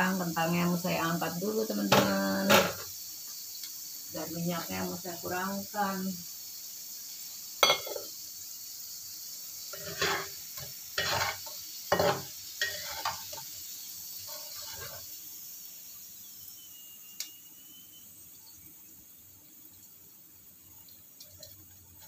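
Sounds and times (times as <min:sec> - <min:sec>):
potatoes sizzling in hot oil: 0:00.0 - 0:22.0
spatula scraping the pan: 0:09.7 - 0:13.6, 0:14.2 - 0:15.2.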